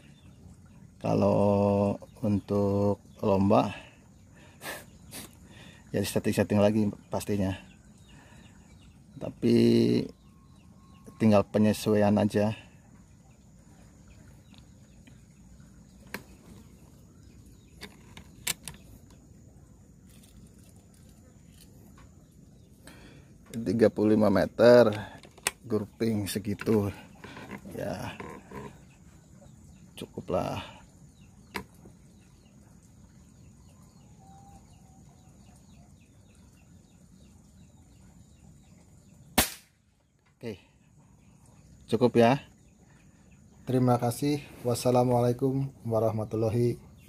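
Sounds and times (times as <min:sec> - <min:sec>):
faint outdoor background: 0:00.0 - 0:47.0
air rifle clicks and knocks: 0:17.8 - 0:18.9, 0:25.2 - 0:25.6.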